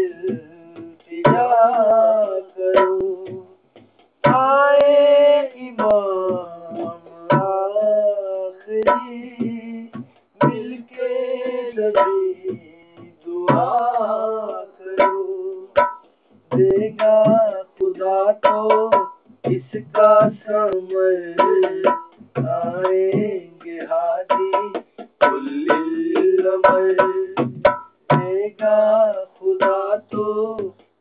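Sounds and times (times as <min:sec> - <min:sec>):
man singing with vibrato: 0:00.0 - 0:03.6, 0:04.2 - 0:30.9.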